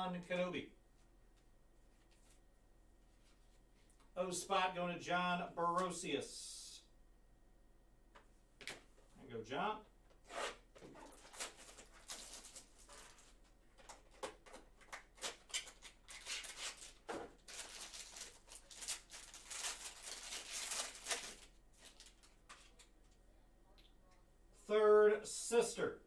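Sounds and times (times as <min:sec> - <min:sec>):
cardboard and cards rustling: 0:10.7 - 0:22.9.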